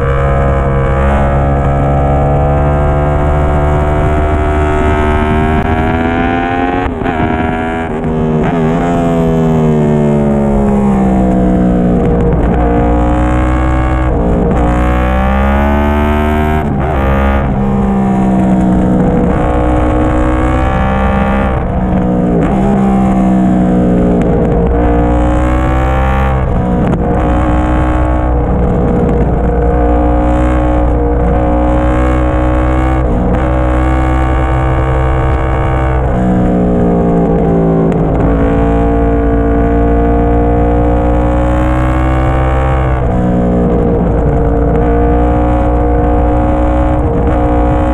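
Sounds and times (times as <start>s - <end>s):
motorcycle engine revving: 0.0s - 47.9s.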